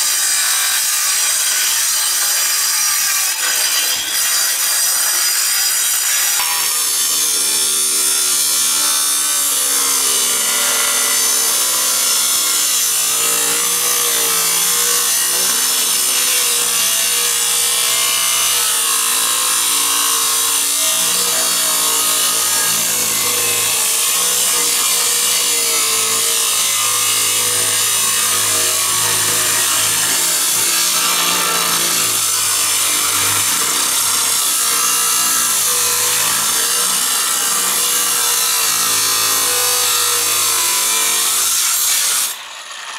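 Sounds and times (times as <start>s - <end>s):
angle grinder cutting steel: 0.0s - 42.9s
grinder disc cutting concrete: 0.0s - 42.9s.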